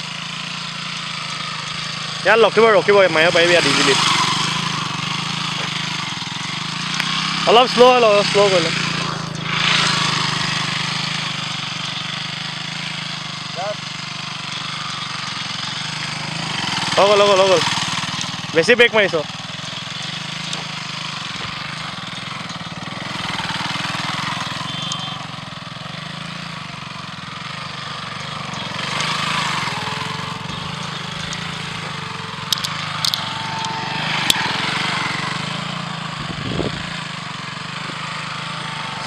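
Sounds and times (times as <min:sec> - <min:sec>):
motorcycle engine at low revs: 0:00.0 - 0:39.0.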